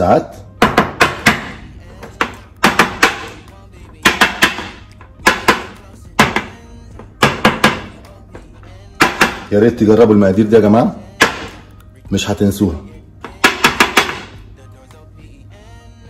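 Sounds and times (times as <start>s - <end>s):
percussive background music: 0.0s - 16.0s.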